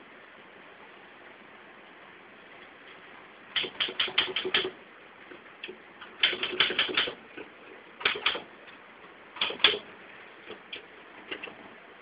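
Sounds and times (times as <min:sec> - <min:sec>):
typewriter keys striking: 0:03.6 - 0:04.8, 0:06.2 - 0:07.2, 0:09.4 - 0:09.8.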